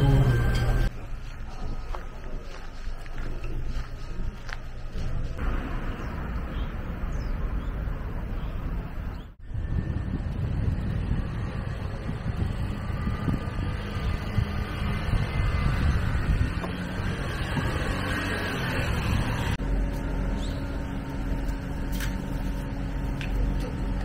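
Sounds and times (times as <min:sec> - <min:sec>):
low hum: 0:00.0 - 0:24.0
wind buffeting on microphone: 0:07.1 - 0:19.6.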